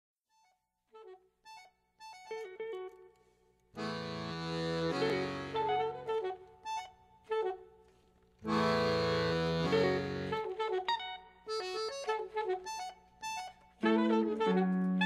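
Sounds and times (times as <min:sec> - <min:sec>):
held chord: 0:03.8 - 0:06.3, 0:08.5 - 0:10.6.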